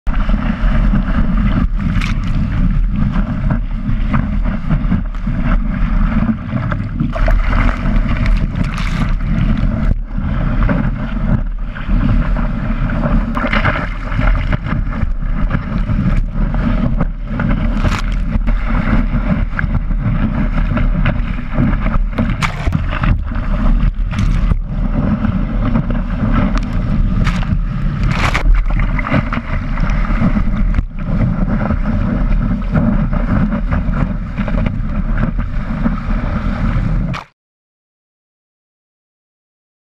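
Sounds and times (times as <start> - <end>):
wind buffeting microphone: 0.1 - 37.2
water rushing and splashing: 0.1 - 37.3.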